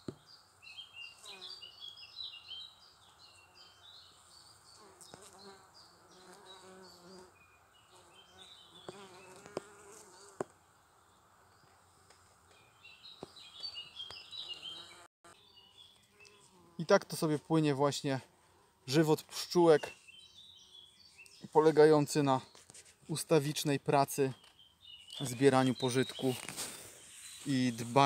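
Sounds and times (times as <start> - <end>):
bees buzzing: 8.0 - 10.5.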